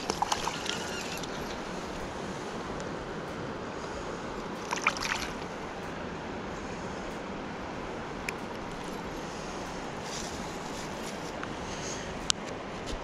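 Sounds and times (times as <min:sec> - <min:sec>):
fish handled in landing net: 0:00.0 - 0:01.7
river flowing: 0:00.0 - 0:12.7.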